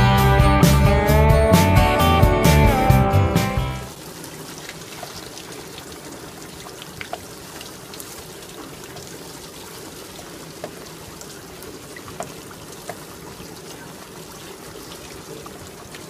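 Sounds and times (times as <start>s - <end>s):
guitar music: 0.0s - 3.9s
water dripping: 3.9s - 16.0s
water trickling: 3.9s - 16.0s.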